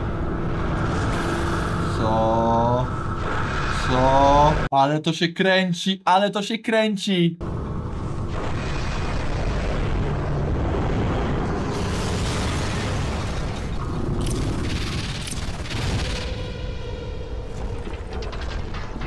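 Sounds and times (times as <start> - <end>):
explosion rumble: 7.4 - 19.0
sharp blasts: 8.0 - 17.1.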